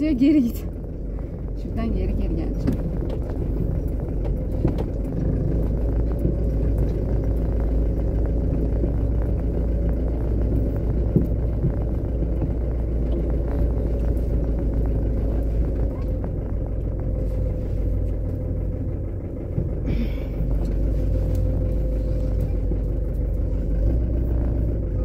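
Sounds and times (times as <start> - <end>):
diesel truck engine running: 0.0 - 25.0.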